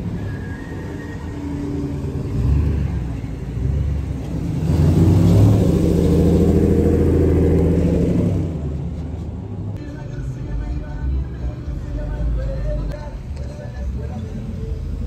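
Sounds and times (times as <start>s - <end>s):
pickup truck engine passing: 0.0s - 9.8s
deep engine and exhaust rumble: 0.0s - 15.0s.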